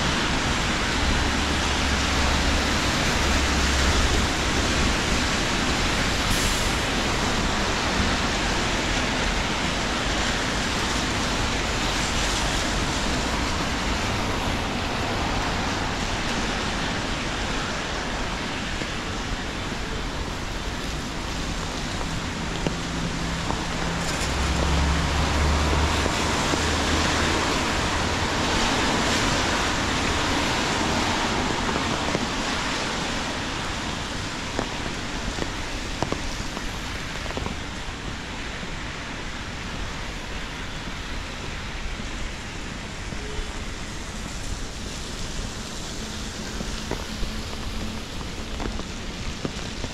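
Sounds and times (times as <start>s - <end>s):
city traffic: 0.0s - 49.9s
rain falling: 0.0s - 49.9s
passing vehicle engine hum: 21.0s - 33.4s.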